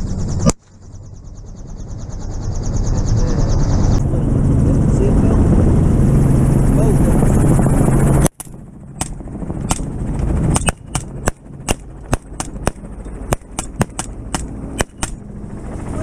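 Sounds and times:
helicopter engine and rotor drone: 0.0 - 16.0
rifle shots: 8.3 - 15.3.

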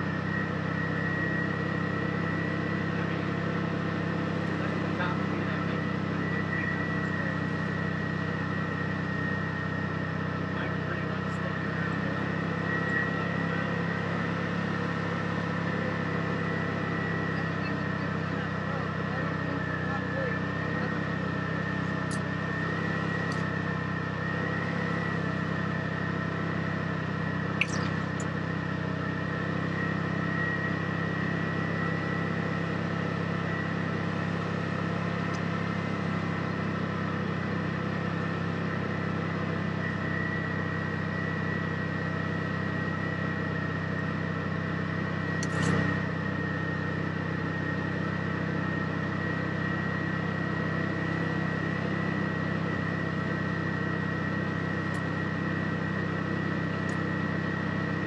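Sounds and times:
vehicle engine running: 0.0 - 58.0
sharp click: 27.6 - 28.3, 45.4 - 45.8.

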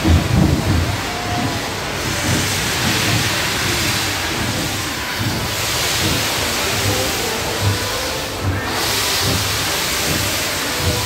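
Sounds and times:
steam locomotive hissing steam: 0.0 - 11.0.

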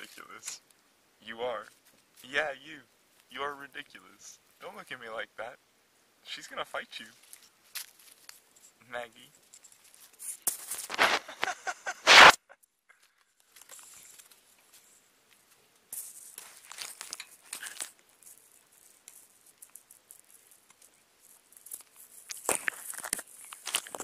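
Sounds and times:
rustling: 0.0 - 4.9, 6.3 - 24.0
scratching on camera body: 9.6 - 12.4, 13.7 - 24.0.

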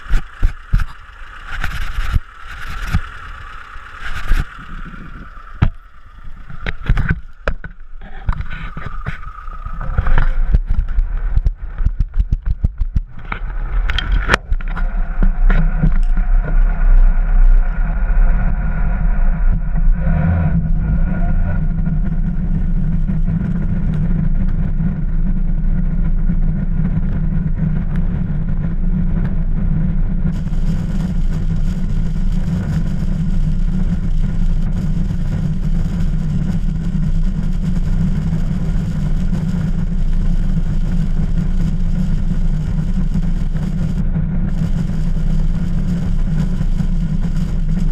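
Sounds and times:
high hiss: 0.0 - 10.9, 30.3 - 47.9
road noise: 0.0 - 47.9
vehicle engine droning: 0.0 - 47.9.

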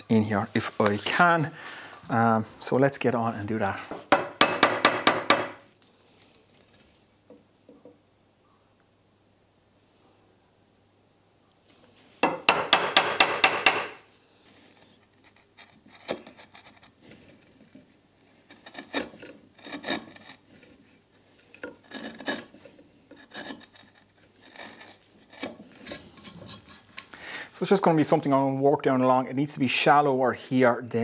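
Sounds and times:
mallet striking chisel: 4.1 - 5.6, 12.2 - 14.0
chisel scraping wood: 12.2 - 27.1.

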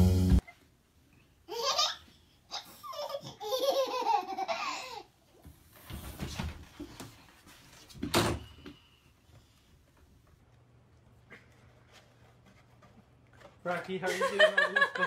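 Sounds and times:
toddler laughing: 1.5 - 5.1.

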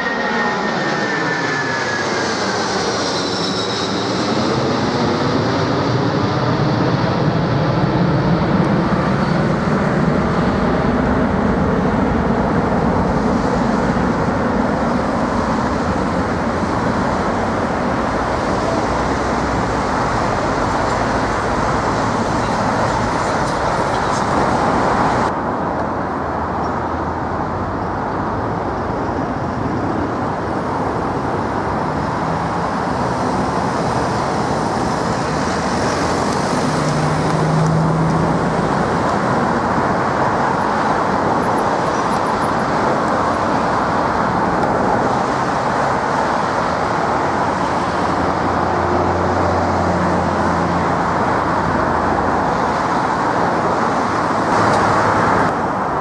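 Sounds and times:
high whine sliding in pitch: 0.0 - 5.8
jet engines roaring: 0.0 - 56.0.

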